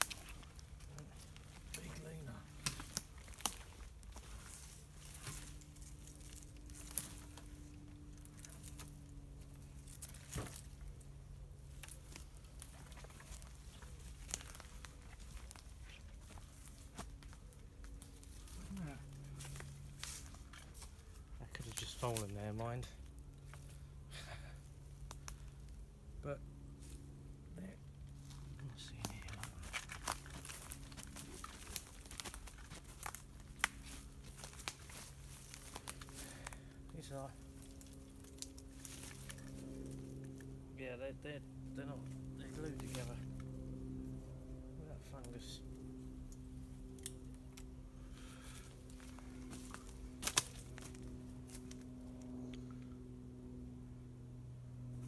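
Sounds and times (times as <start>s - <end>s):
branches brushing past: 0.0s - 22.8s, 28.1s - 40.5s, 45.0s - 52.5s
twigs and leaves crackling underfoot: 0.0s - 53.0s
faint low hum: 0.0s - 55.0s
sharp twig snaps: 46.3s - 47.7s, 49.8s - 50.9s.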